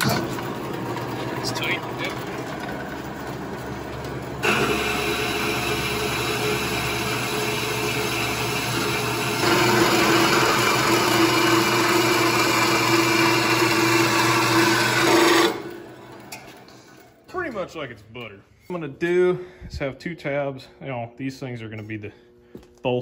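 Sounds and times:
band saw cutting steel: 0.0 - 16.3.

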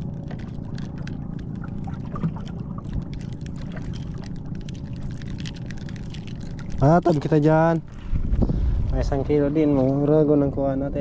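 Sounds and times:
water lapping against boat hull: 0.0 - 8.6
steady low rumble: 0.0 - 11.0.

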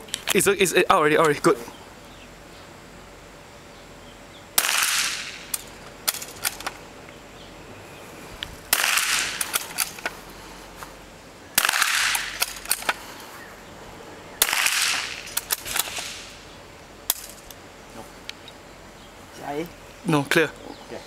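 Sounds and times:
rifle shots: 4.6 - 6.7, 8.7 - 10.0, 11.6 - 12.9, 14.4 - 16.4.

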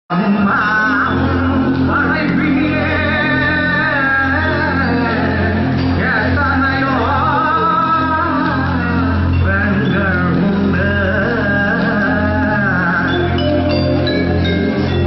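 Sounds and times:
song over sound system: 0.1 - 15.0.

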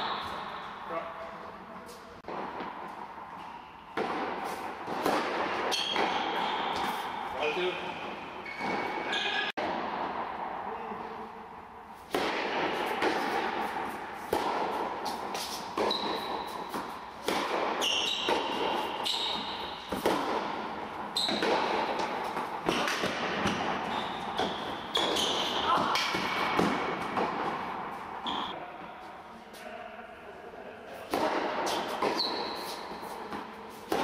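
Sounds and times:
rackets striking tennis ball: 2.2 - 11.0, 12.0 - 28.6, 31.0 - 34.0.

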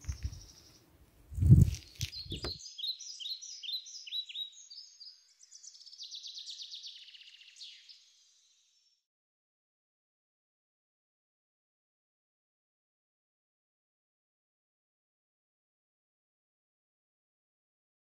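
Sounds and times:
songbird singing: 0.0 - 9.0
rumble on the microphone: 1.3 - 2.6.

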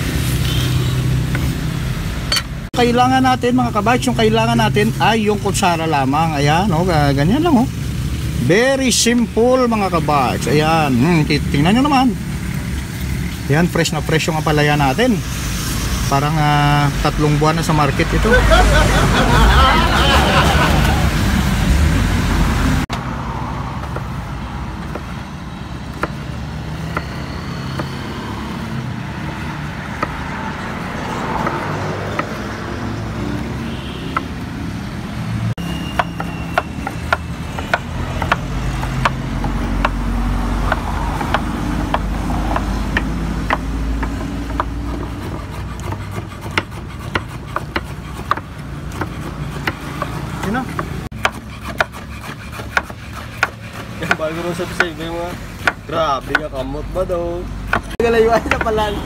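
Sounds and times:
road traffic rumble: 0.0 - 59.0
cleavers chopping on wooden boards: 23.8 - 25.2, 25.8 - 30.4, 31.2 - 32.5, 35.9 - 59.0.

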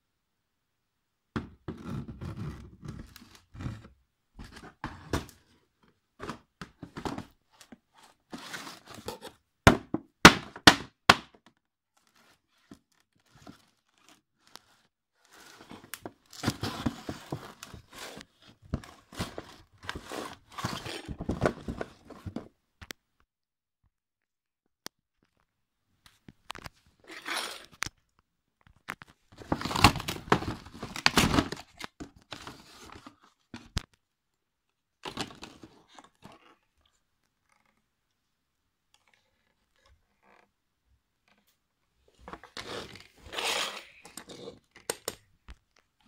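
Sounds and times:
cardboard crinkling and tearing: 29.3 - 33.2.

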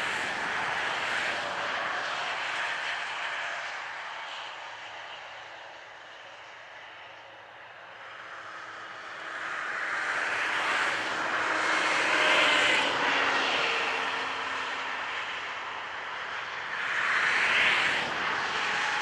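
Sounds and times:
vehicle passing by: 8.0 - 19.0.

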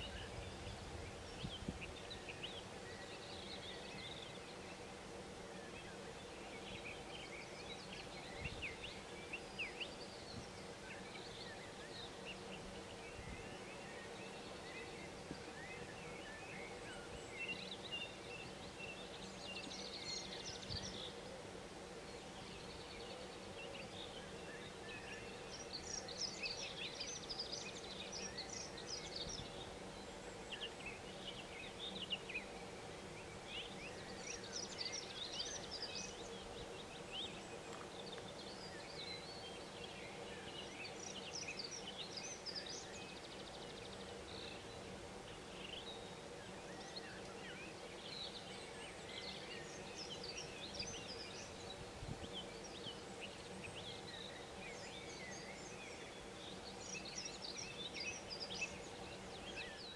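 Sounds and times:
birds chirping and trilling: 0.0 - 59.9
faint steady hum: 0.0 - 59.9.

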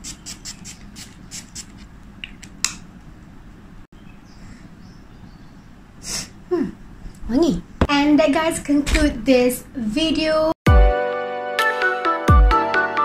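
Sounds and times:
spray bottle hissing: 0.0 - 1.8.

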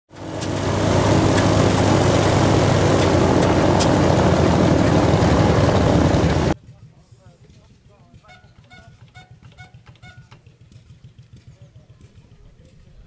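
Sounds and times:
loud engine running: 0.1 - 6.6.

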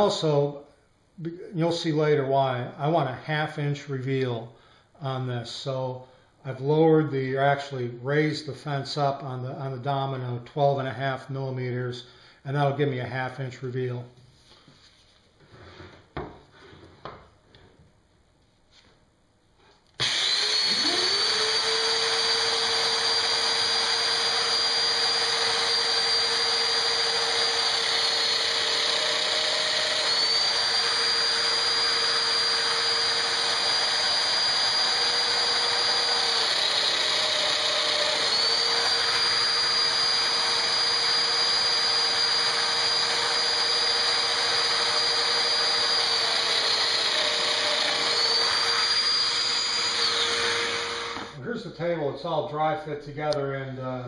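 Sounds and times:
power joiner running: 20.0 - 51.4.

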